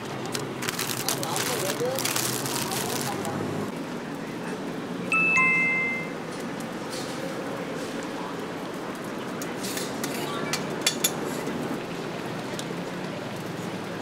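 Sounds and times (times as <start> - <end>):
steady background noise: 0.0 - 14.0
two-note chime: 5.1 - 6.2.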